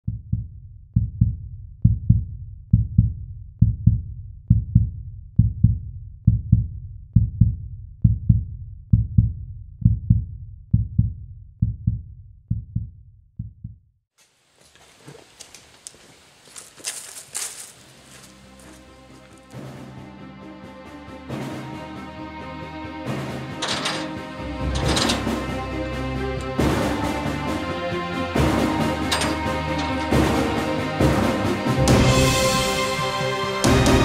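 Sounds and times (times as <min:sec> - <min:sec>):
deep heartbeat thumps: 0:00.0 - 0:13.8
faint outdoor background noise: 0:14.2 - 0:19.6.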